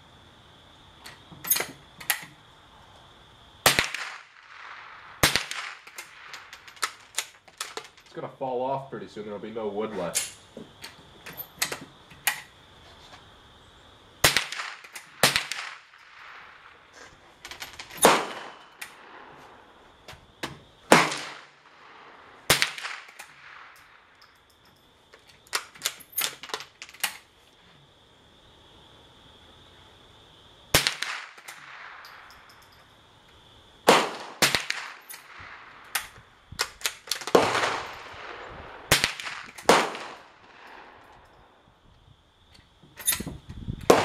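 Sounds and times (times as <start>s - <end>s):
rifle gunshots: 3.6s - 6.3s, 14.2s - 16.6s, 17.8s - 19.3s, 20.9s - 23.8s, 30.8s - 32.0s, 33.8s - 35.7s, 37.2s - 40.9s.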